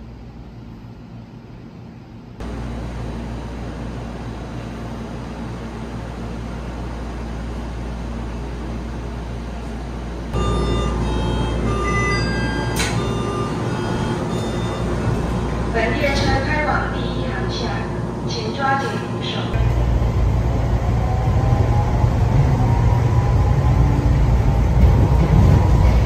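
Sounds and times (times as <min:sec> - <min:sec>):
train and platform hum: 0:00.0 - 0:26.0
door-closing warning beeps: 0:10.4 - 0:15.5.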